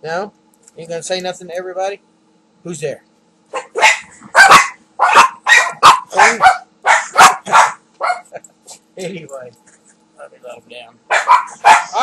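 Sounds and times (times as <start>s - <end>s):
small dog barking: 3.5s - 8.4s, 11.1s - 12.0s.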